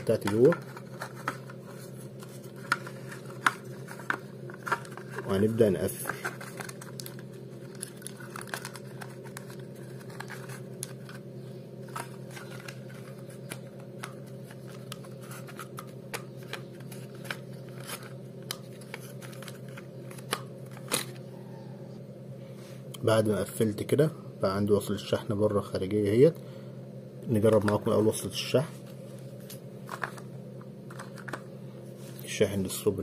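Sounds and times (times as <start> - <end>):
plastic clicks and scratches: 0.2 - 5.3, 6.1 - 11.2.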